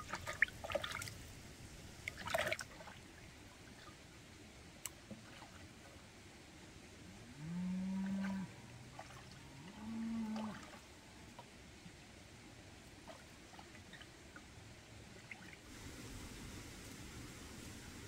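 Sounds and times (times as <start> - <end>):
cow mooing: 7.4 - 8.5, 9.5 - 10.7.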